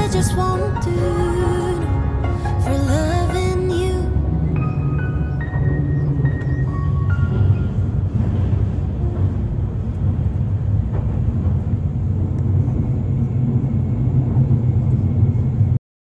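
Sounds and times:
vehicle engine rumble: 0.0 - 15.8.

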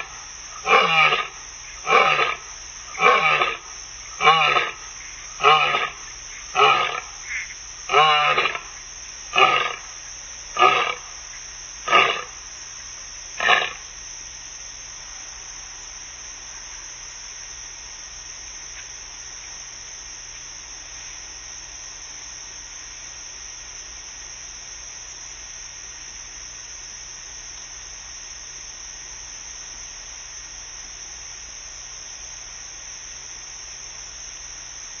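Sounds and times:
steady hiss: 0.0 - 35.0
lioness roaring: 0.6 - 3.6, 4.2 - 4.8, 5.4 - 7.1, 7.9 - 8.7, 9.3 - 9.9, 10.6 - 11.0, 11.9 - 12.4, 13.4 - 13.8.

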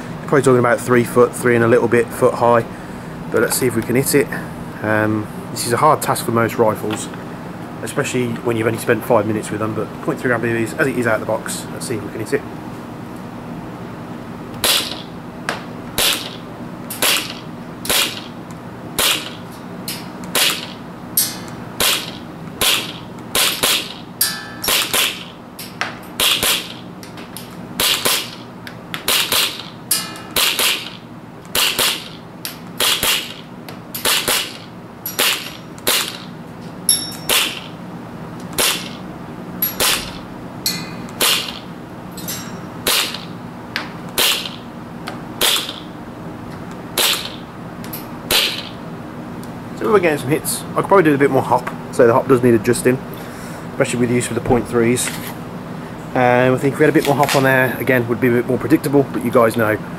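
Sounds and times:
airsoft gun shots: 14.6 - 15.0, 17.0 - 18.3, 19.0 - 19.3, 20.3 - 20.7, 21.8 - 23.9, 31.6 - 32.1, 38.6 - 39.0, 41.2 - 41.6, 42.8 - 43.3, 44.2 - 44.6, 45.4 - 45.9, 47.0 - 47.4, 48.3 - 48.7.

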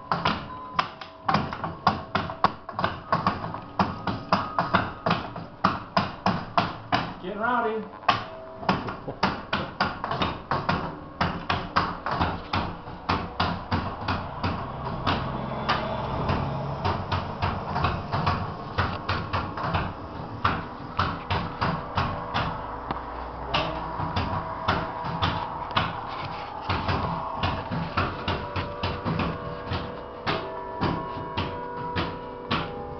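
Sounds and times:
church bells ringing a tune: 8.3 - 9.2, 18.5 - 32.9.

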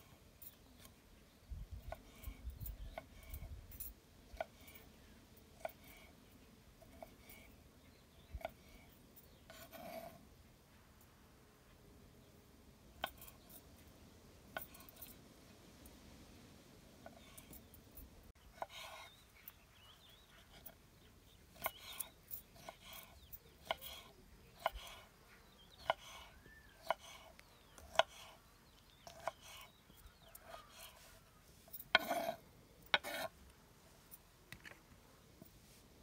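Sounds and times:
knife chopping on wooden board: 32.9 - 33.3.

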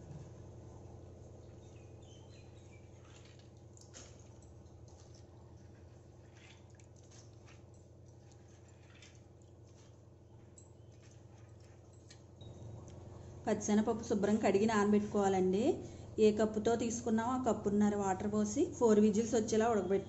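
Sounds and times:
steady low hum: 0.0 - 20.0
small splashes and drips: 2.4 - 13.2
hands rinsing lentils in water: 2.9 - 12.4.

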